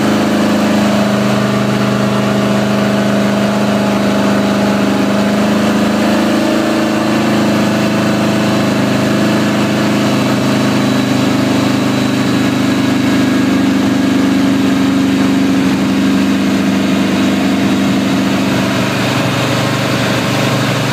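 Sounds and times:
motorcycle engine running steadily: 0.0s - 20.9s.

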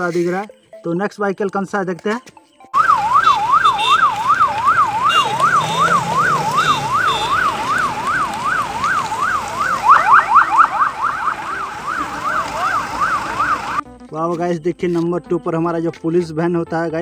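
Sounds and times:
electronic siren wailing: 2.8s - 13.8s
second siren rising sweeps: 2.8s - 13.8s.

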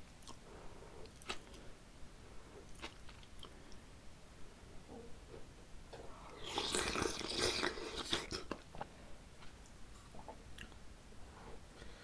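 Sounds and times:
close chewing and mouth sounds: 0.0s - 1.7s, 2.6s - 3.8s, 6.1s - 10.8s.

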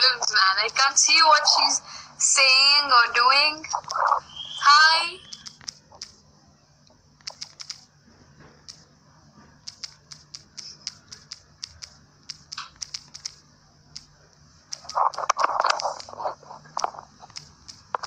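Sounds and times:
faint steady hum: 0.0s - 18.0s
phone keyboard key clicks: 5.2s - 6.2s, 7.2s - 7.9s, 9.6s - 13.4s, 14.7s - 16.2s, 16.8s - 18.0s.

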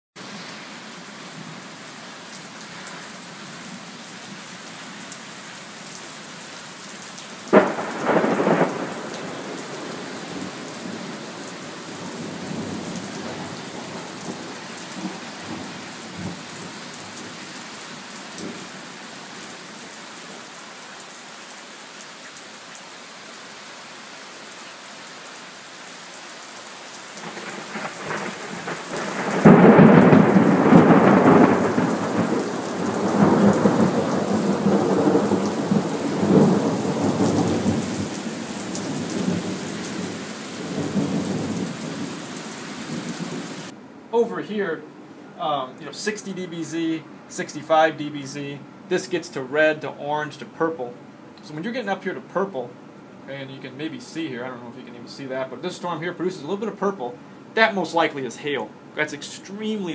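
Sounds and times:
steady rain: 0.2s - 59.9s
thunder clap: 7.5s - 11.2s, 27.2s - 38.1s
low thunder rumbles: 7.5s - 16.7s, 27.2s - 42.2s.

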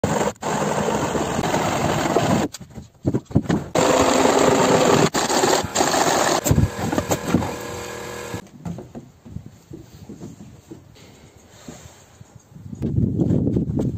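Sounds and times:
power tool on wood: 3.8s - 8.4s.

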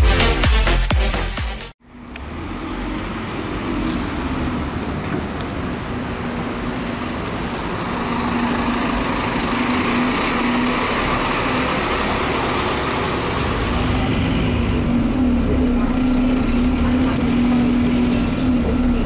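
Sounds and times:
dance music: 0.0s - 1.8s
diesel bus engine drone: 0.0s - 19.0s
street traffic noise: 1.2s - 19.0s.

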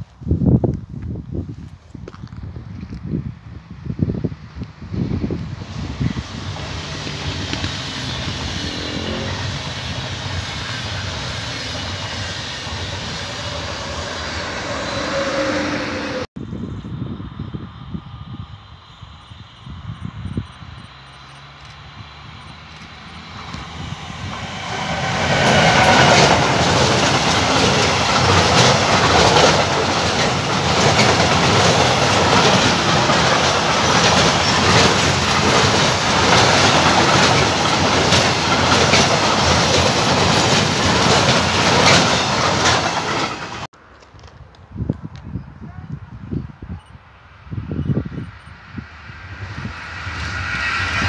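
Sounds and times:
train wheels clattering on rails: 5.7s - 15.2s, 22.4s - 43.7s.

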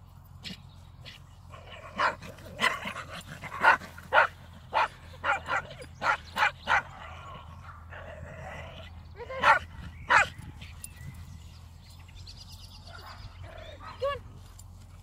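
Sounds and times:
dogs barking: 1.5s - 8.1s, 9.2s - 10.5s, 12.8s - 14.2s.

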